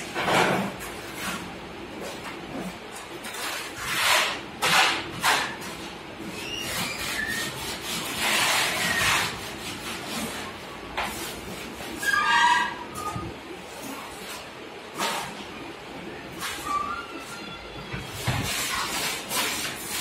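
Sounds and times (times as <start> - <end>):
putty blade scraping plaster wall: 0.0 - 15.4, 18.0 - 20.0.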